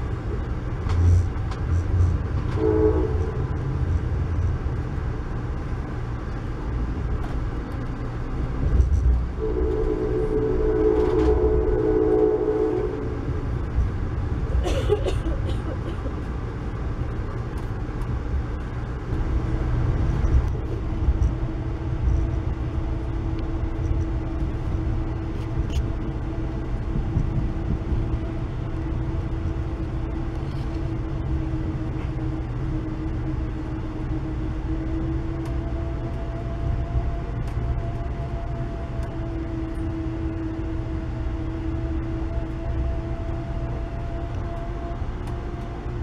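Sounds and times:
track clicks and clatter: 0.0s - 2.6s, 3.2s - 9.4s, 12.7s - 46.0s
steady low hum: 0.0s - 46.0s
train low rumble: 0.0s - 46.0s
train horn chord: 2.5s - 3.6s, 9.4s - 13.4s.

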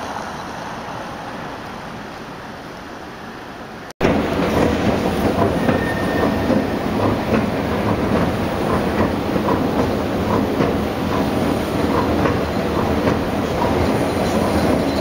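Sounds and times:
train rumbling: 0.0s - 15.0s.

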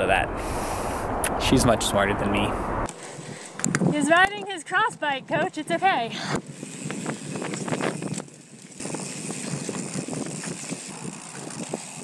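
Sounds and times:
wind on microphone: 0.0s - 4.2s, 6.1s - 12.0s
bike tyres on dirt trail: 2.9s - 4.7s, 5.4s - 12.0s
bike rattling over bumps: 6.2s - 12.0s.

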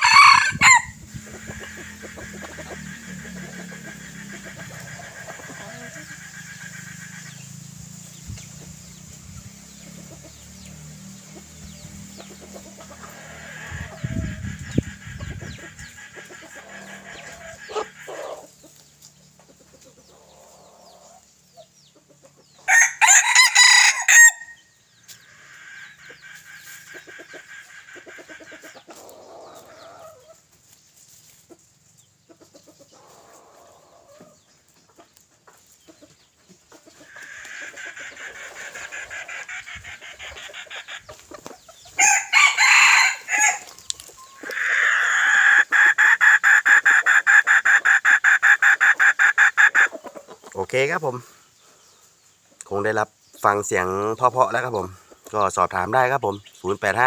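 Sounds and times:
rooster crowing: 0.0s - 1.0s, 13.0s - 14.7s, 22.7s - 24.7s, 42.0s - 43.8s
faint clucks: 33.8s - 41.9s.

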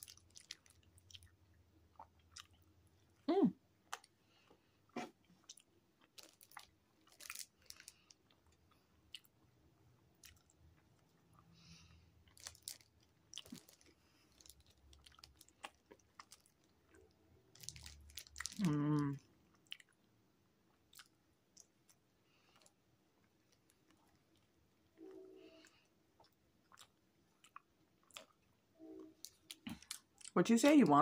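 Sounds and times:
person humming mmm: 18.6s - 19.2s
chewing and wet mouth clicks: 20.7s - 22.0s, 26.2s - 28.5s.

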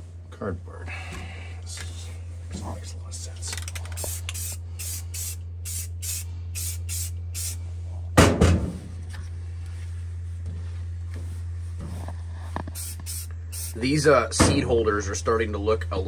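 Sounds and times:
steady low hum: 0.0s - 16.0s
spray can hissing bursts: 3.9s - 7.6s, 12.8s - 13.8s
loud thump: 8.2s - 8.9s.

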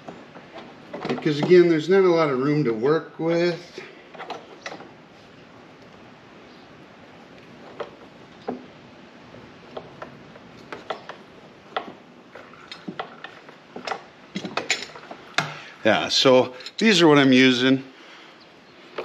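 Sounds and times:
metal clicks and knocks: 0.0s - 1.7s, 9.7s - 15.6s.

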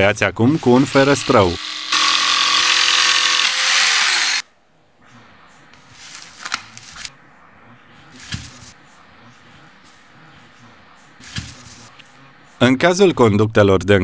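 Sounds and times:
electric jigsaw cutting: 1.0s - 4.4s.

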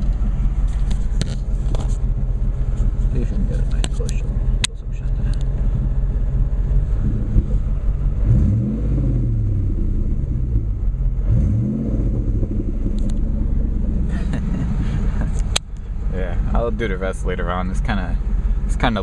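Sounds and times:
car engine idling and revving: 0.0s - 19.0s.

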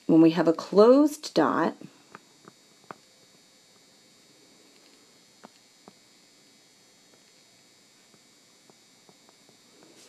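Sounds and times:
faint electrical hum: 0.0s - 10.0s.

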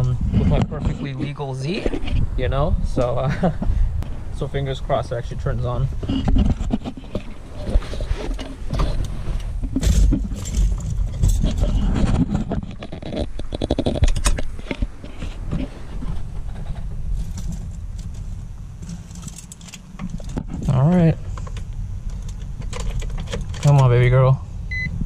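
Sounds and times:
low rumble: 0.0s - 25.0s
knocks and rustling: 6.0s - 24.0s.

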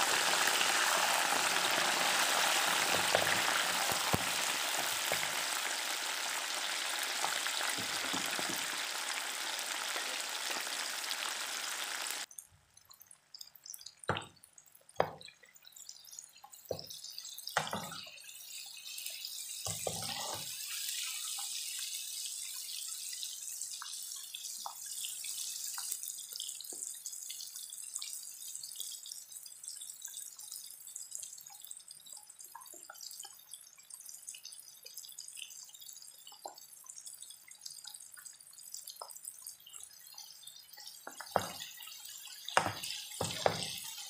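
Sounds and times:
food sizzling in hot oil: 0.0s - 12.3s, 16.5s - 28.8s, 38.9s - 44.0s.

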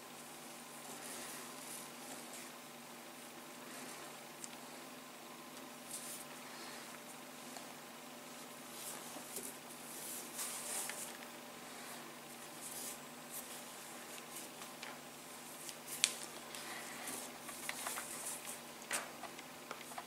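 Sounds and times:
cord rustling and swishing: 8.4s - 11.3s, 12.4s - 20.0s.

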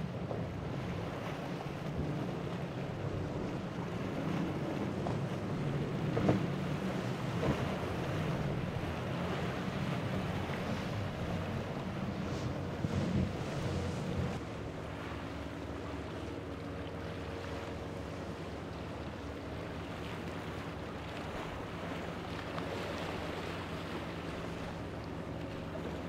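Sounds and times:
wind on microphone: 0.0s - 14.5s
outboard engines droning: 0.0s - 26.0s.

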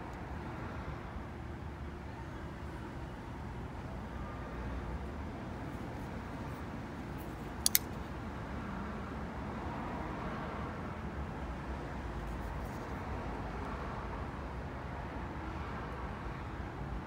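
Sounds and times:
knife blade locking click: 7.6s - 8.0s.

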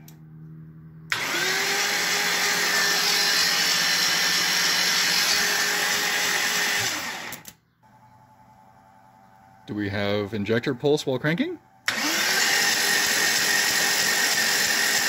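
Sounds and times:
starter motor cranking engine: 1.1s - 7.5s, 11.8s - 15.0s.

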